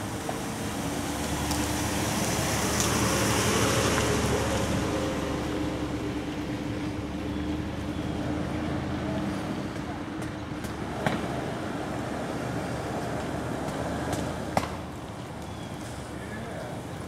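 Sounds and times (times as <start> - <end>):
pickup truck engine passing: 0.0 - 9.6.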